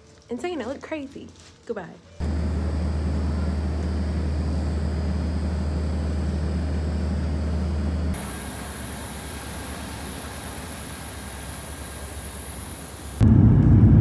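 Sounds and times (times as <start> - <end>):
thin high whine: 2.2 - 13.4
bus engine low drone: 2.2 - 14.0.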